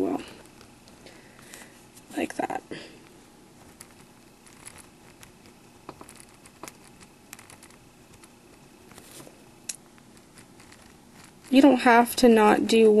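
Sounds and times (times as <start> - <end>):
ballpoint pen scratching on paper: 3.6 - 9.2, 10.0 - 11.7.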